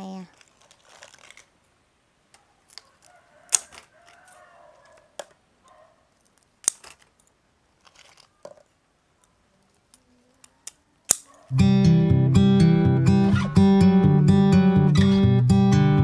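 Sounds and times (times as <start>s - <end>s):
crab shells cracking: 0.3s - 1.6s, 2.6s - 5.4s, 6.1s - 11.5s
rooster crowing: 2.9s - 5.2s.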